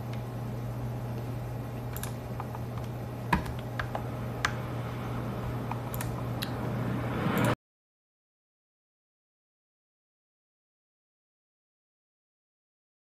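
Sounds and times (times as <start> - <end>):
low hum: 0.0 - 7.6.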